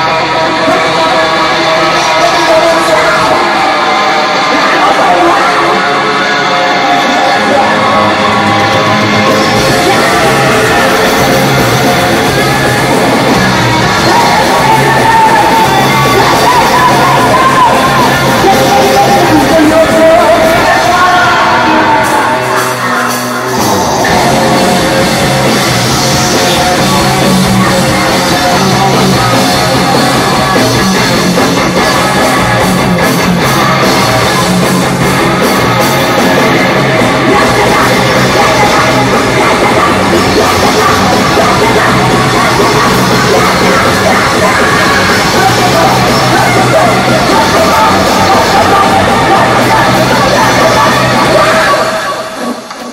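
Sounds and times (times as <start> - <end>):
distorted noise rock band: 0.0 - 52.9
shouted vocals: 0.0 - 52.9.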